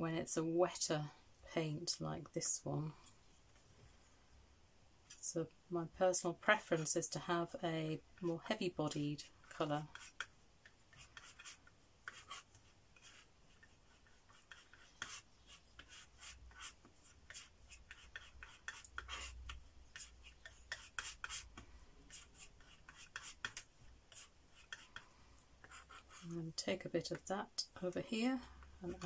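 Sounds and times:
palette knife scraping paint: 8.8s - 27.2s.

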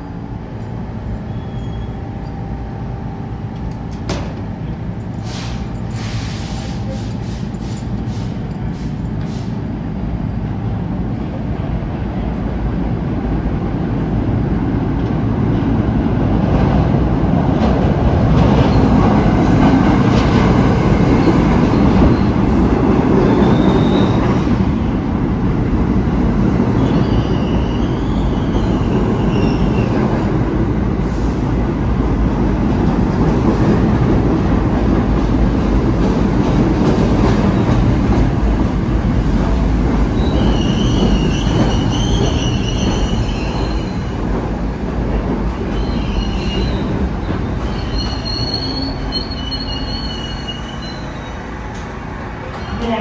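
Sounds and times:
train wheels rumbling on rails: 0.0s - 53.0s
high-pitched wheel squeal: 1.3s - 2.0s, 47.6s - 51.5s.

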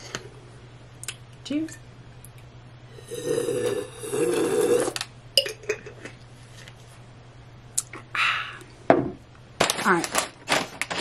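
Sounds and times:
person gulping: 3.0s - 6.0s.

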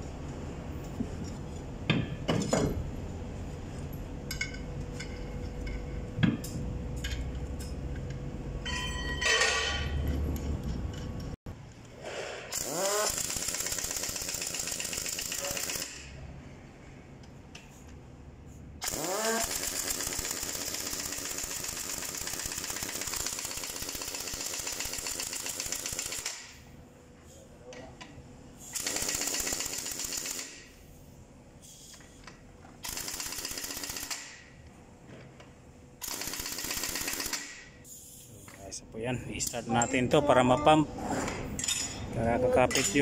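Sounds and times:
pneumatic impact wrench hammering: 11.9s - 16.2s, 18.8s - 26.6s, 28.6s - 30.9s, 31.6s - 34.6s, 36.0s - 38.3s
impact wrench rising whine: 12.4s - 15.4s
impact wrench hammering: 12.5s - 16.1s, 28.8s - 30.8s.

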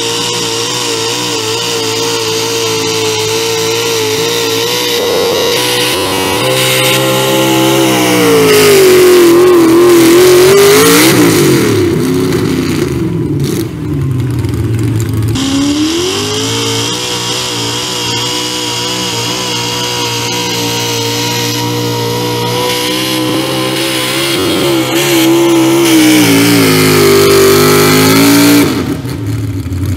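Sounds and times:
tractor engine revving under load: 0.0s - 29.9s.

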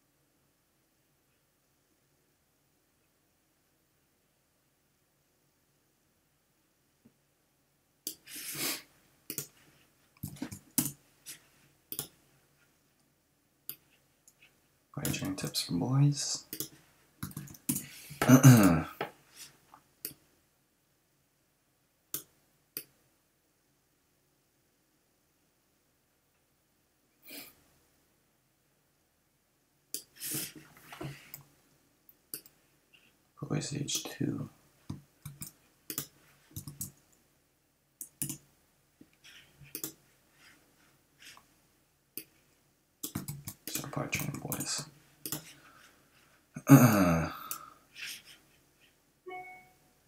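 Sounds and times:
computer mouse clicks: 9.3s - 9.6s, 10.2s - 11.0s, 11.9s - 12.2s, 16.5s - 17.9s, 22.1s - 22.9s, 29.9s - 30.2s, 32.3s - 32.6s, 35.2s - 37.0s, 38.0s - 38.4s, 39.6s - 40.0s, 43.0s - 45.5s
man's wordless vocal sound: 18.2s - 19.0s, 46.6s - 47.7s.

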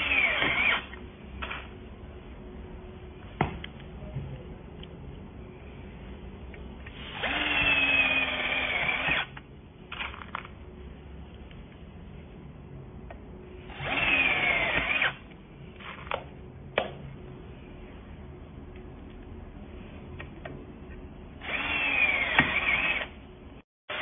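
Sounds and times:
drill whining into steel: 0.0s - 0.9s, 7.0s - 9.3s, 13.7s - 15.2s, 21.4s - 23.2s.

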